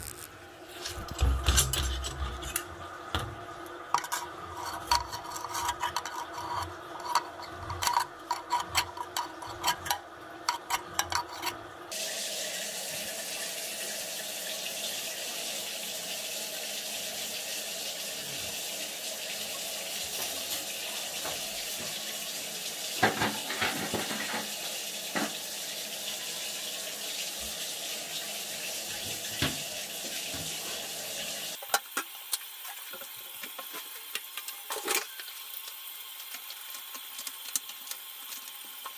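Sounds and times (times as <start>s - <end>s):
steady hum: 0.0s - 5.9s
water running: 0.0s - 38.9s
drain cable rattling and scraping: 0.7s - 11.7s, 23.0s - 24.5s.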